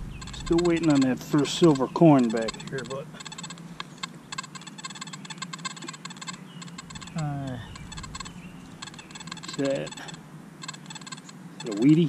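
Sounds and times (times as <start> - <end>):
low steady hum: 0.0 - 5.0, 6.0 - 10.6
metal detector warbling tone: 0.0 - 12.0
rapid crackling clicks: 0.0 - 12.0.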